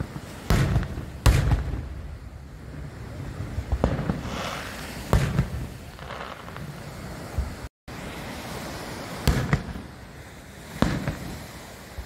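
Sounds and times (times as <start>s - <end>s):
firework bangs: 0.0s - 7.7s, 9.0s - 11.6s
brief hiss: 4.1s - 5.2s.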